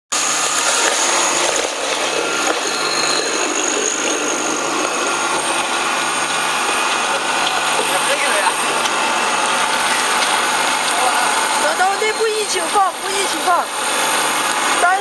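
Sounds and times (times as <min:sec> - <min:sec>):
grinder motor droning: 0:00.1 - 0:15.0.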